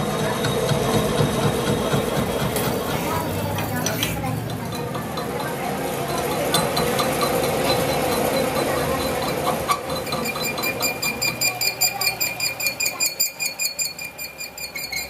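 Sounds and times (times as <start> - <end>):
metal lathe cutting steel: 0.0 - 15.0
high-pitched pulsing squeal: 7.2 - 15.0.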